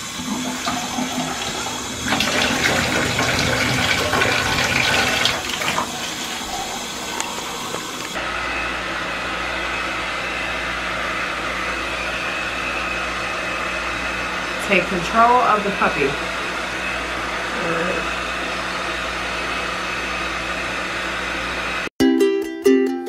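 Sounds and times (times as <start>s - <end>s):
water splashing in bathtub: 0.0s - 8.2s
hair dryer blowing: 0.0s - 21.9s.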